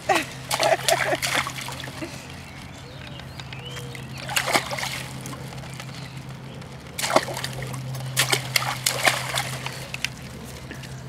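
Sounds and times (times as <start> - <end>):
water splashing: 0.0 - 11.0.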